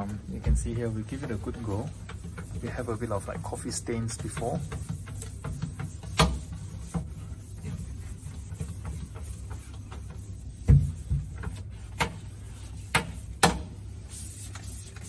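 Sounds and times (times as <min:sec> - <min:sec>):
rag wiping steel sink: 0:00.0 - 0:15.0.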